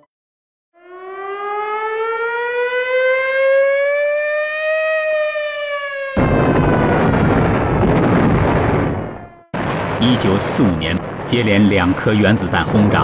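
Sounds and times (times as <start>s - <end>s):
air-raid siren wailing: 0.8s - 9.8s
bomb explosion: 6.2s - 13.0s.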